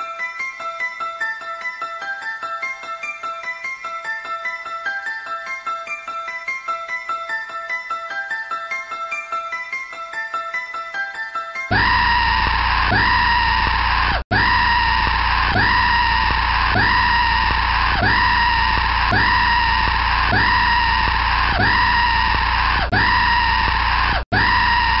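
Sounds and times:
low drone: 0:11.7 - 0:25.0
shrieking scream: 0:11.7 - 0:25.0.

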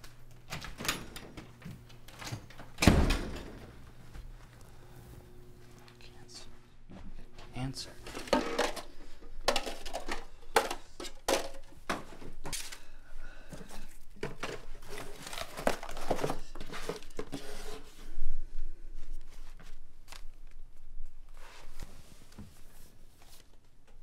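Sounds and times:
paper and plastic rustling: 0:07.9 - 0:12.9, 0:13.7 - 0:18.1
plastic cups clattering: 0:08.0 - 0:12.8, 0:13.6 - 0:17.8.

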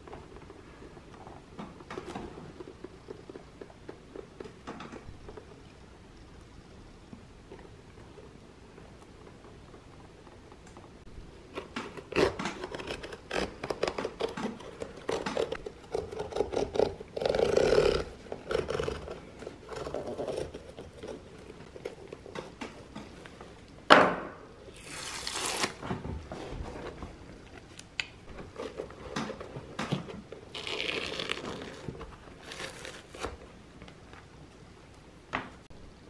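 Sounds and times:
knife cutting leather stitching: 0:11.6 - 0:21.0
leather sole ripping: 0:24.7 - 0:25.8, 0:30.5 - 0:33.4.

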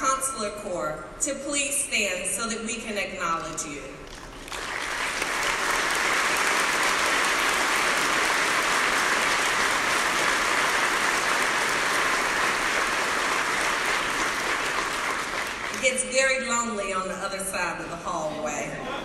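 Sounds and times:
audience applauding: 0:04.1 - 0:15.8.

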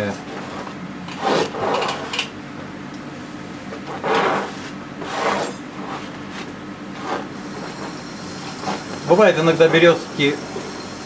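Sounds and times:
paint brush scrubbing canvas: 0:03.9 - 0:07.8.

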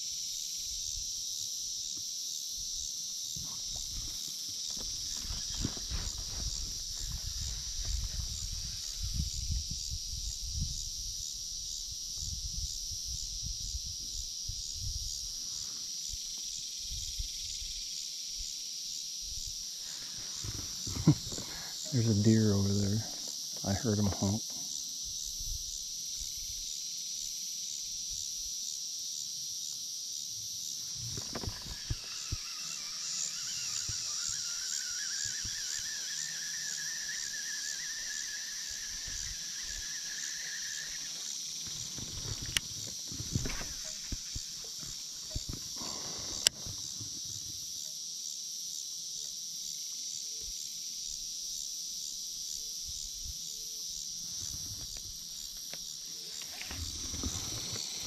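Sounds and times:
insect chorus trilling: 0:00.0 - 0:58.0.

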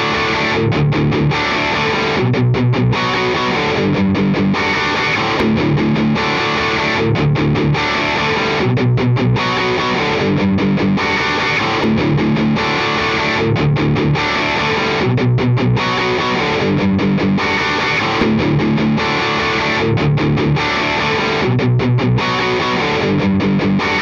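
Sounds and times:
looped electric guitar riff: 0:00.0 - 0:24.0.

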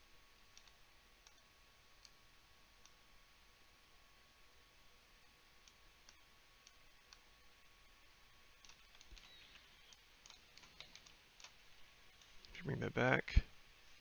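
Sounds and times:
computer mouse and keyboard clicking: 0:00.5 - 0:01.4, 0:08.6 - 0:12.6.

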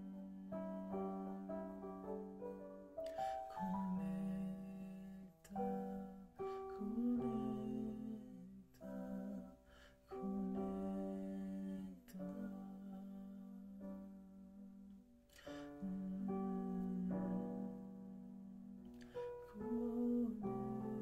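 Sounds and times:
voices singing: 0:03.4 - 0:14.8, 0:19.5 - 0:21.0.

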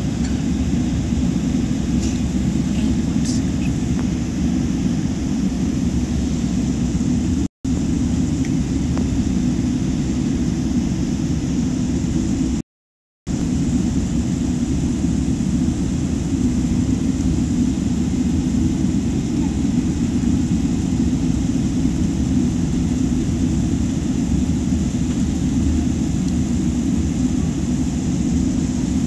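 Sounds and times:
cabin air-conditioning: 0:00.0 - 0:12.6, 0:13.3 - 0:29.0
jet engines at low power: 0:00.0 - 0:12.6, 0:13.3 - 0:29.0.

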